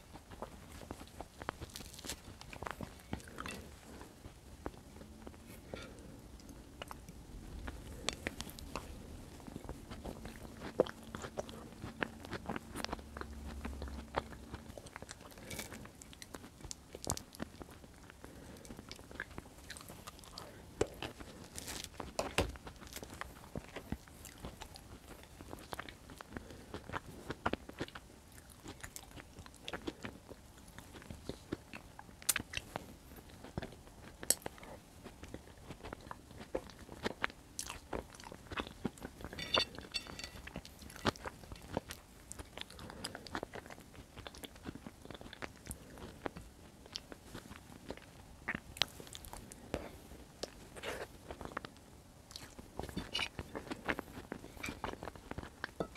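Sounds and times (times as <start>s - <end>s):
close-miked chewing: 0.0s - 55.9s.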